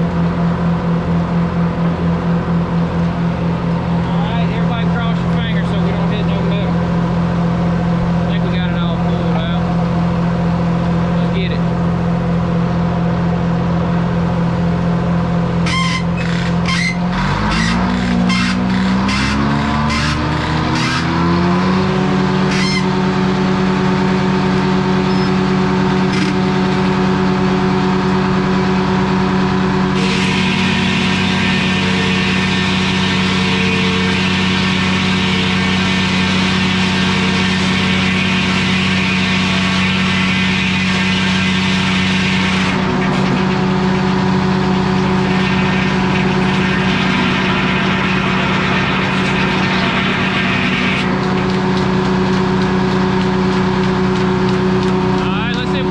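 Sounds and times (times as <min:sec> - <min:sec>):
sawmill motor humming: 0:00.0 - 0:55.9
circular saw cutting wood: 0:15.5 - 0:55.9.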